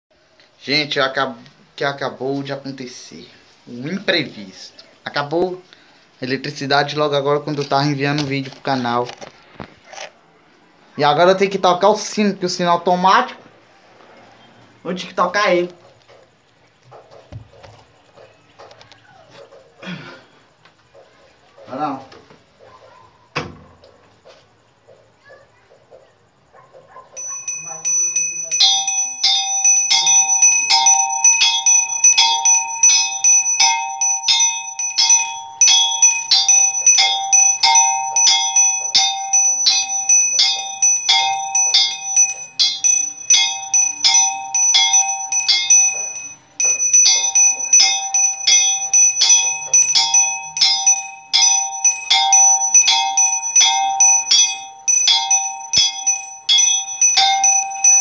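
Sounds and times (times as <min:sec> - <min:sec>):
small brass bell rung by hand: 0:27.2 - 0:58.0.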